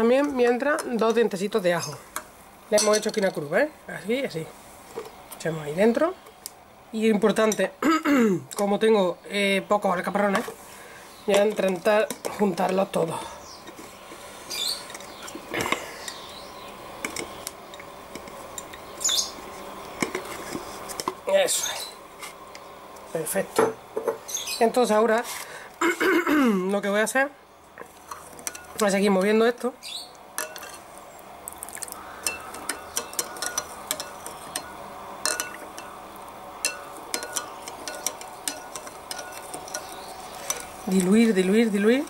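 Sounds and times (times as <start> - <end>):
metal spoon clinking on glass bowl: 2.8 - 3.2, 32.2 - 35.9, 36.6 - 39.9
glass jar clinking: 33.0 - 35.9.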